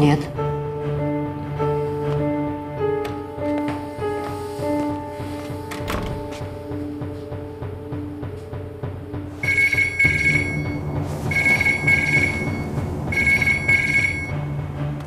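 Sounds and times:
soft background music: 0:00.0 - 0:15.0
phone ringtone: 0:09.4 - 0:14.5.

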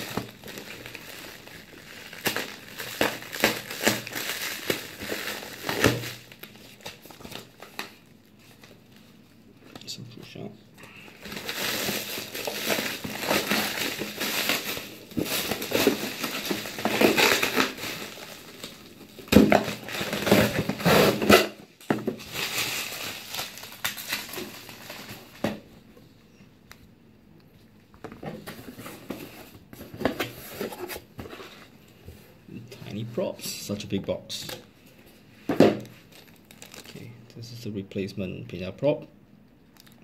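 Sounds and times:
plastic packaging crinkling: 0:00.0 - 0:09.2, 0:10.8 - 0:25.7, 0:33.6 - 0:37.2.

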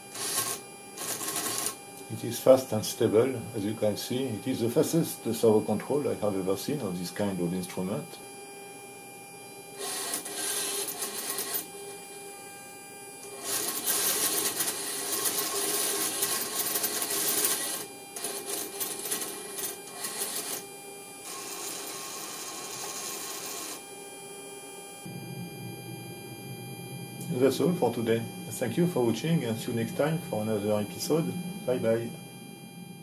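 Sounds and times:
steady hum: 0:00.0 - 0:33.0
servo motor whirring: 0:09.8 - 0:11.6, 0:13.2 - 0:20.6.

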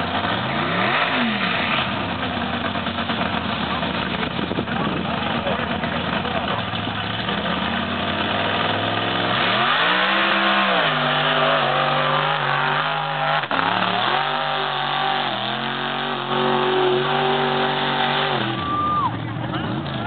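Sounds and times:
truck engine revving at full throttle: 0:00.0 - 0:20.0.

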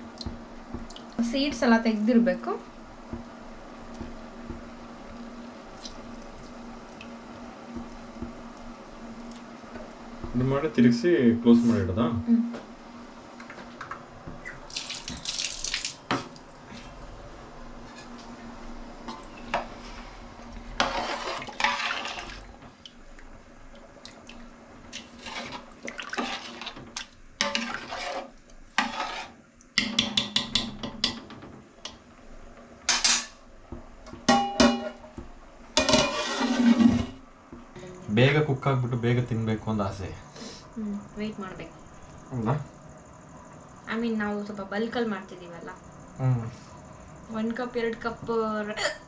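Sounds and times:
ladle scraping in metal pot: 0:20.8 - 0:22.4, 0:24.9 - 0:26.8, 0:27.4 - 0:29.4, 0:35.8 - 0:37.2
sloshing: 0:23.8 - 0:29.4.

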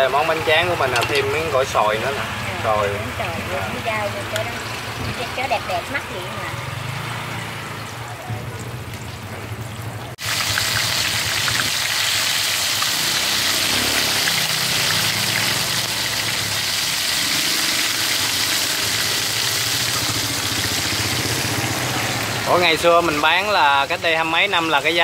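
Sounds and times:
deep-frying sizzle with crackles: 0:00.0 - 0:25.0.

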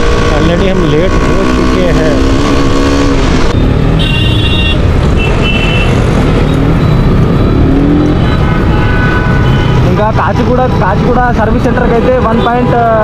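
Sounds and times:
motorcycle engine: 0:00.0 - 0:12.2
high-pitched vehicle horn beeps: 0:04.0 - 0:06.0.

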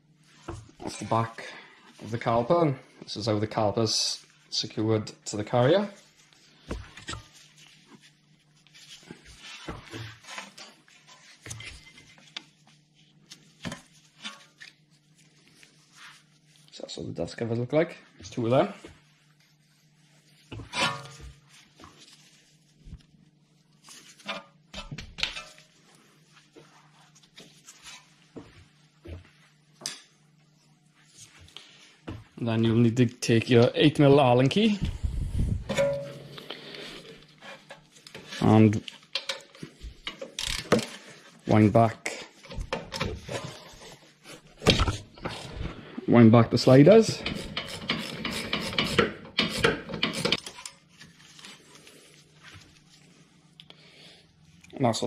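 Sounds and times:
steady low hum: 0:34.1 - 0:37.9.

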